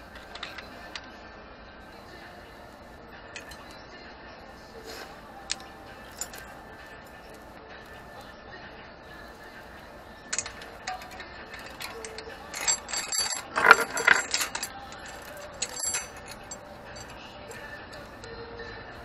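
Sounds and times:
bicycle chain rattling: 0:00.0 - 0:01.0, 0:05.5 - 0:07.4, 0:10.3 - 0:18.0
faint radio music: 0:00.0 - 0:19.0.

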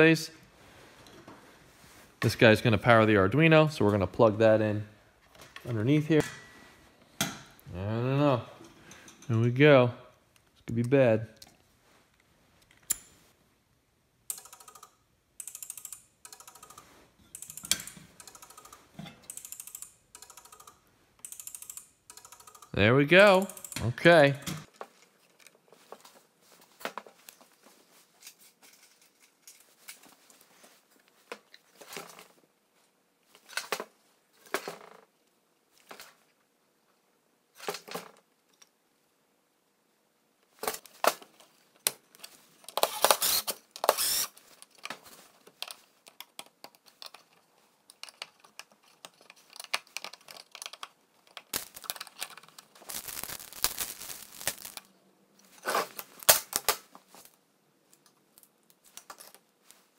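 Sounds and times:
plastic crinkling: 0:51.5 - 0:54.9.

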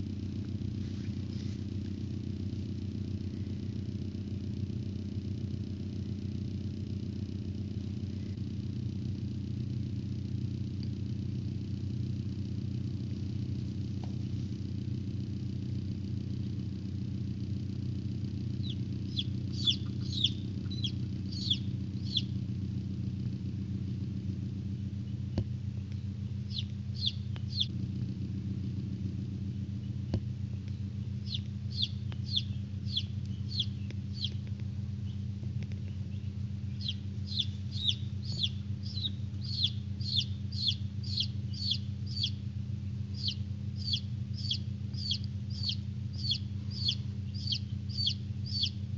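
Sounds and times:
low hum: 0:00.0 - 0:48.9
chicks peeping: 0:18.5 - 0:22.4, 0:26.5 - 0:27.7, 0:31.2 - 0:42.4, 0:43.1 - 0:48.8.

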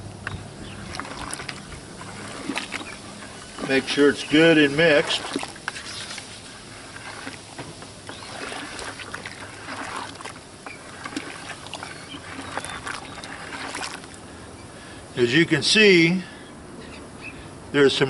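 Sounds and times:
paddle clicking against bucket: 0:00.2 - 0:14.2
slurry sloshing in plastic bucket: 0:00.3 - 0:14.6.

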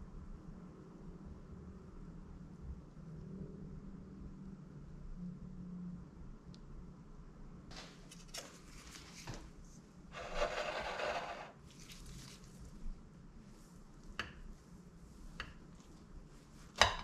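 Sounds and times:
scraping rub: 0:10.1 - 0:12.5.

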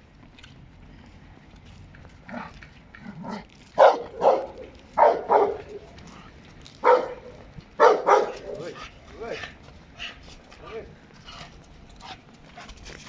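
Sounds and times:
dog barking: 0:03.2 - 0:05.9, 0:06.8 - 0:08.8.

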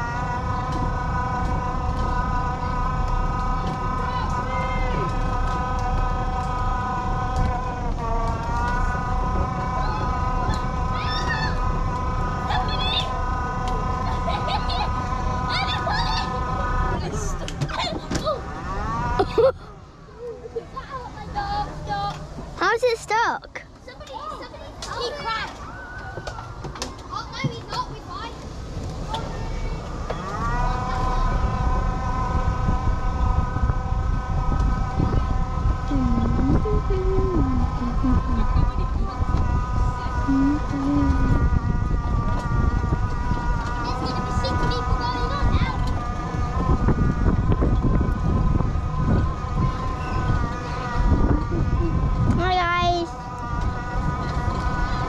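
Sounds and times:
low rumble: 0:00.0 - 0:22.6, 0:24.8 - 0:55.0
wheels rolling on wooden deck: 0:23.7 - 0:32.3.

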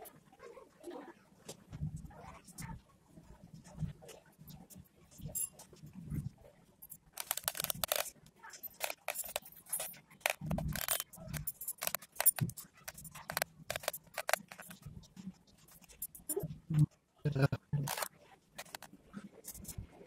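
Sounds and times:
handling scrapes and rustles: 0:06.8 - 0:14.9, 0:17.9 - 0:19.8.

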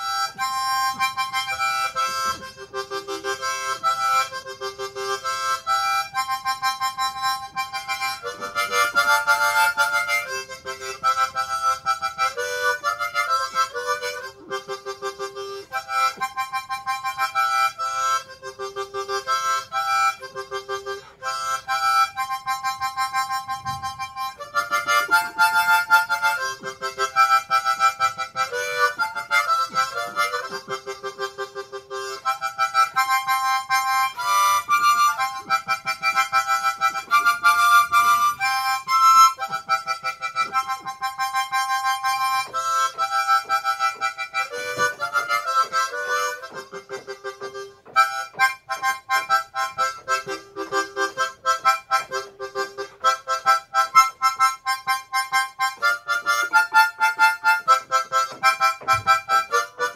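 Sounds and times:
harmonica melody: 0:00.0 - 0:59.9.

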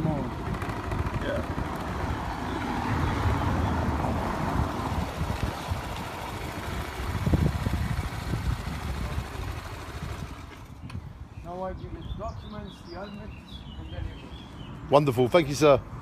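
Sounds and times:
motorbike engine idling: 0:00.0 - 0:03.1, 0:03.9 - 0:11.1.

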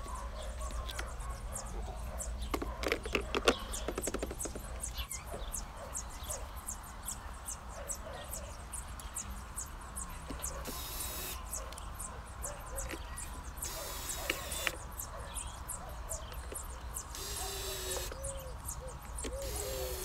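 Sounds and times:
birds chirping and calling: 0:00.0 - 0:20.0
cordless drill driving screws: 0:10.6 - 0:11.4, 0:13.6 - 0:14.8, 0:17.1 - 0:18.2, 0:19.2 - 0:20.0.

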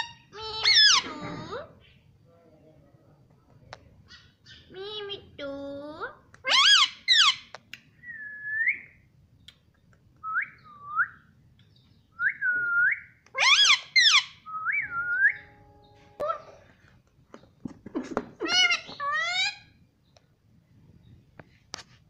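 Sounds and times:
harsh parakeet calls: 0:00.0 - 0:01.6, 0:06.4 - 0:07.5, 0:13.4 - 0:16.6, 0:18.4 - 0:19.8
parakeet whistling: 0:12.2 - 0:16.6.

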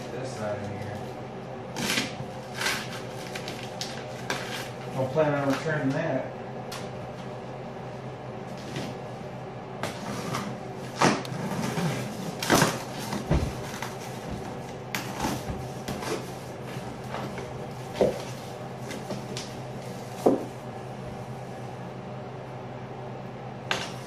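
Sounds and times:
cardboard and tape scraping and rustling: 0:01.7 - 0:05.6, 0:09.8 - 0:20.4.

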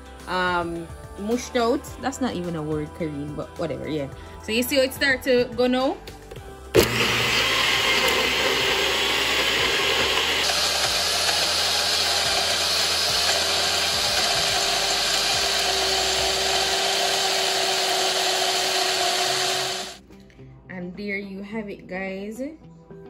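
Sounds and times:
blender motor running: 0:06.8 - 0:20.0.

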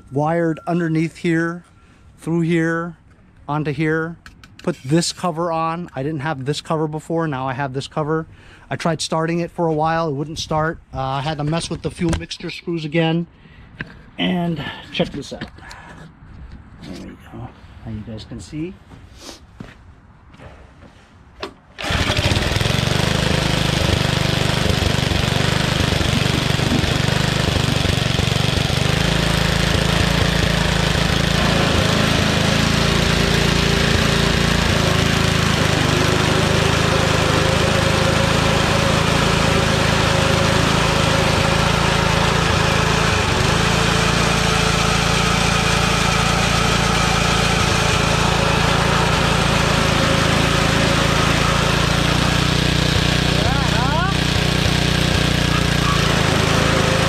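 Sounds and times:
lawn mower engine running: 0:21.8 - 0:57.0.

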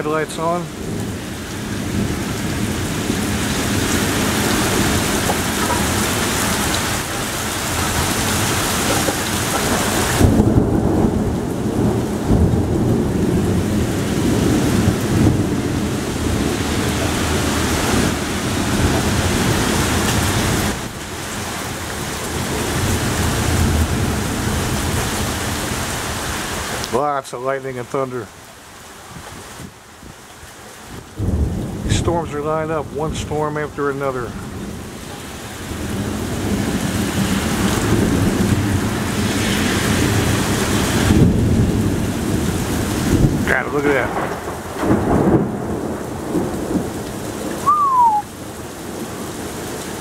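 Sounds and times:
torrential rain pouring: 0:00.0 - 0:50.0
low rumble of thunder: 0:00.7 - 0:21.0, 0:31.0 - 0:33.2, 0:34.3 - 0:49.6.

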